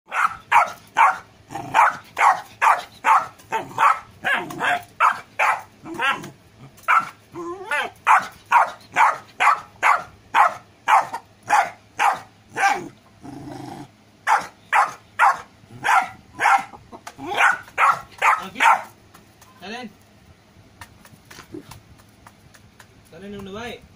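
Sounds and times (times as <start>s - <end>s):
puppy barking: 0.1s - 13.0s, 14.2s - 19.0s.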